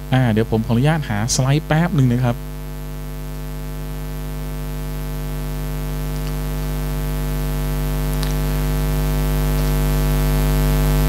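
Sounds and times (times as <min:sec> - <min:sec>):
electrical mains hum and hiss: 0:00.0 - 0:11.0.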